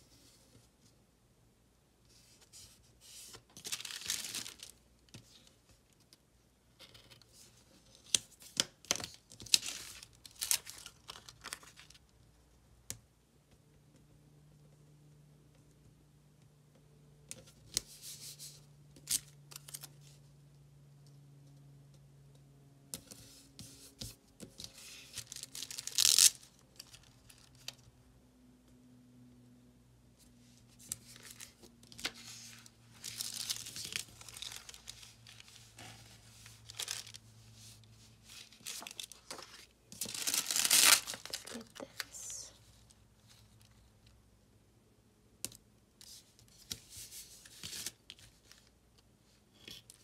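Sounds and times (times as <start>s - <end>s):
paper and plastic rustling: 3.3s - 4.8s, 30.7s - 43.8s.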